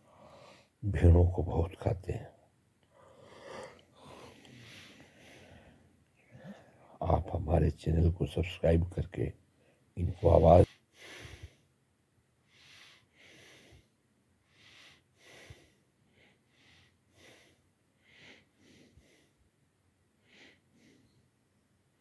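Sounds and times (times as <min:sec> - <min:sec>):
faint breathy puffs: 0:02.9 - 0:06.8, 0:10.6 - 0:11.7, 0:12.5 - 0:19.4.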